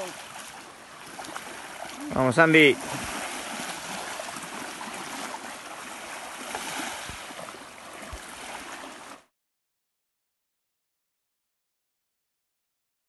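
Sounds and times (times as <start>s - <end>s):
water lapping at shoreline: 0.0s - 9.3s.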